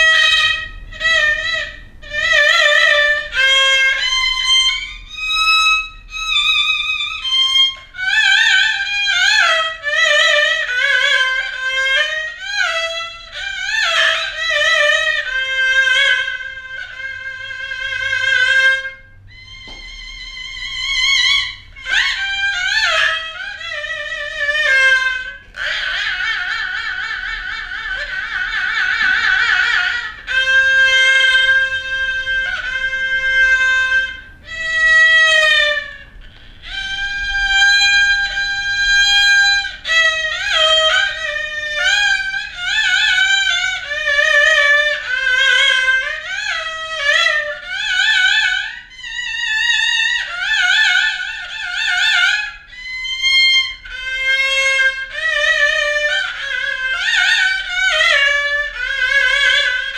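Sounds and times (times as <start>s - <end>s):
two-string fiddle playing: 0.0s - 59.9s.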